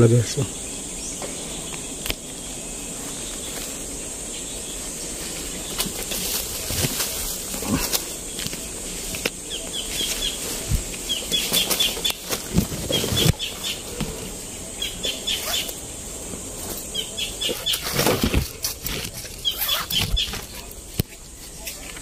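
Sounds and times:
leaves and brush rustling: 0.0s - 22.0s
footsteps in undergrowth: 1.7s - 22.0s
high chirping call: 14.8s - 15.8s.

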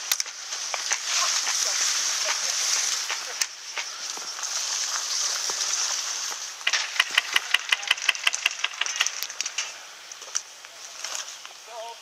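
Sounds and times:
steady high hiss: 0.0s - 12.0s
airsoft rifle shots: 6.7s - 9.6s.

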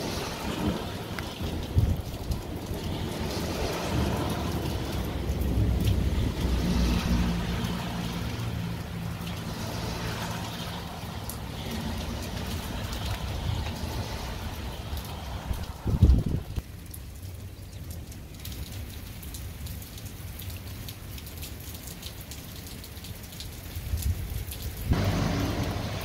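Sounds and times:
truck driving past on wet road: 0.0s - 16.6s, 24.9s - 26.0s
rain and running water hiss: 0.0s - 26.0s.

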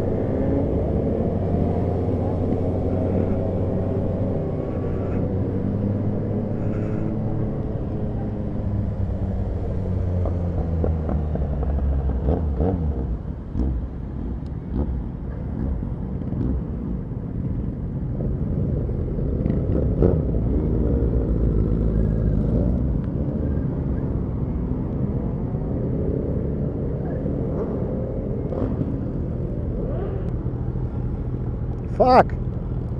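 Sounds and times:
motorcycle engine revving: 0.0s - 14.1s, 19.2s - 23.6s, 27.1s - 30.3s.

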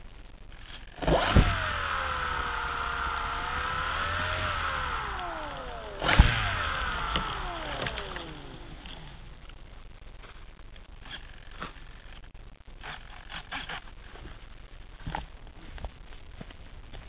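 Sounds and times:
electric motor and propeller whine: 1.0s - 9.3s.

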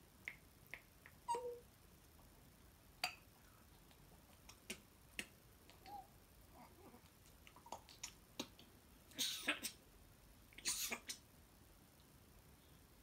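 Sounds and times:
faint parrot chirp: 1.2s - 1.7s.

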